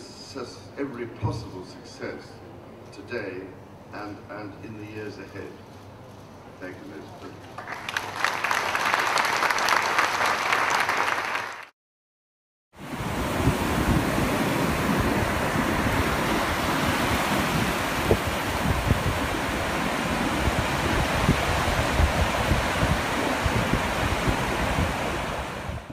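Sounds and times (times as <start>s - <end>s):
surf washing on sandy beach: 12.8s - 25.9s
wind buffeting microphone: 12.8s - 25.9s.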